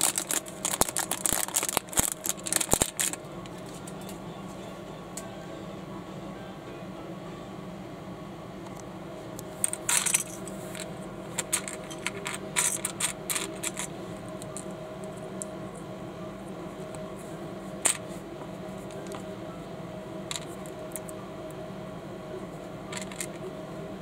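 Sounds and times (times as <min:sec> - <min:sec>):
plastic bricks clicking and clattering: 0:00.0 - 0:03.2, 0:11.4 - 0:14.7, 0:22.9 - 0:23.4
steady background hum: 0:00.0 - 0:24.0.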